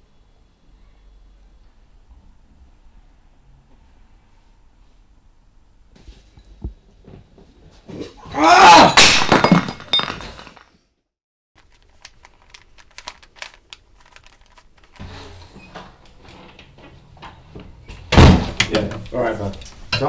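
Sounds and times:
ceramic bowl smashing on floor: 8.8s - 10.8s
broken pieces clinking: 9.0s - 10.8s.

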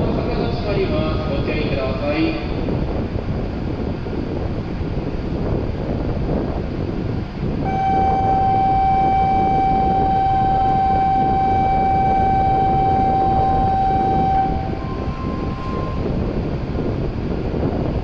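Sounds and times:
steady rumble: 0.0s - 18.0s
electronic buzzer steady tone: 7.6s - 16.1s
brief higher tone: 7.6s - 16.3s.

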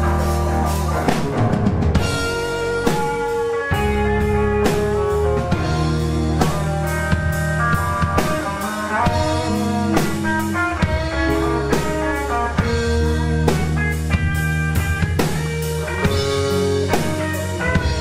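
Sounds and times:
bass guitar: 0.0s - 18.0s
drum and cymbal hits: 0.0s - 18.0s
electric guitars: 0.0s - 18.0s.

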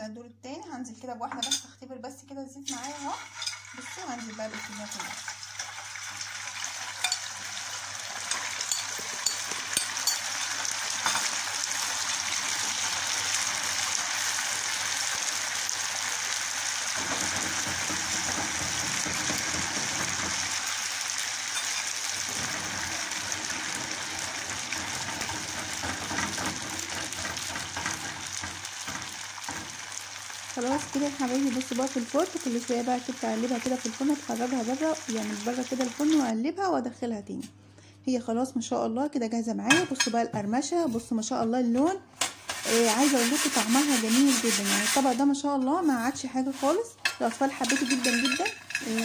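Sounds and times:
pasta deep-frying in oil: 2.6s - 36.4s, 42.2s - 49.0s
oil crackling and popping: 4.6s - 36.3s.

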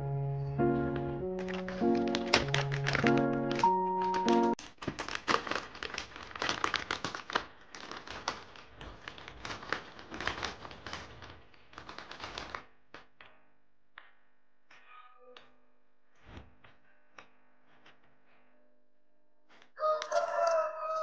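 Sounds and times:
plastic bag crinkling: 1.3s - 12.6s
chips clattering together: 1.4s - 12.6s.

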